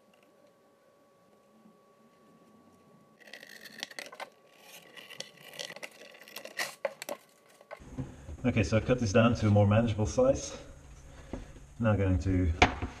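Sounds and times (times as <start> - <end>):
knife scraping through leather: 3.2 - 7.8.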